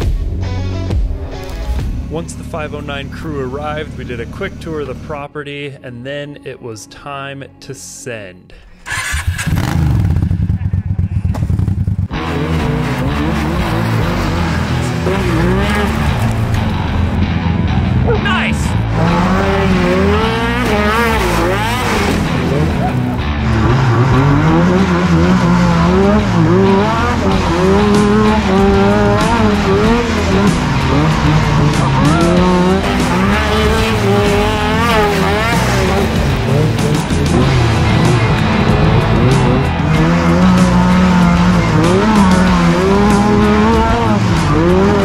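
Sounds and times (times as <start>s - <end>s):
background music: 0.0s - 10.4s, 12.1s - 45.0s
engine running choppily: 1.2s - 5.4s, 8.8s - 45.0s
off-road vehicle engines revving: 1.3s - 5.3s, 8.8s - 45.0s.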